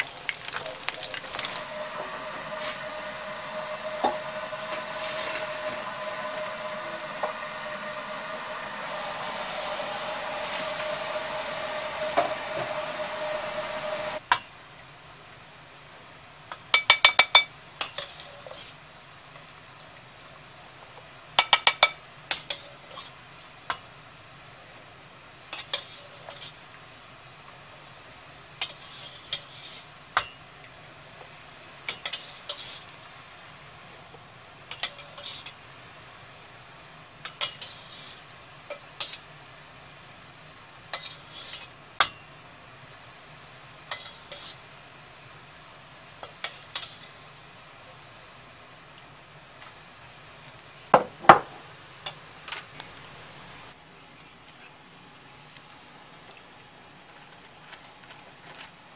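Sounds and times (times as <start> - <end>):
steady hum with held tone: 0.0 - 14.2.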